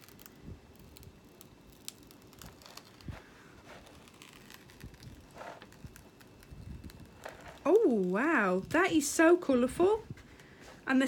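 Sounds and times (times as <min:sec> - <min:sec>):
paper peeling and crinkling: 0:00.0 - 0:09.0.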